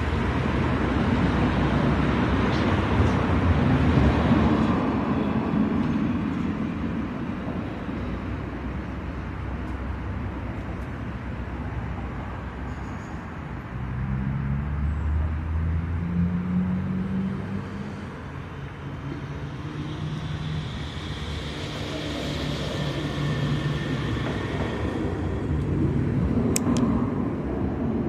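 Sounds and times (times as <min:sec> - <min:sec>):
street traffic rumble: 0:00.0 - 0:28.0
sharp clicks: 0:26.5 - 0:26.9.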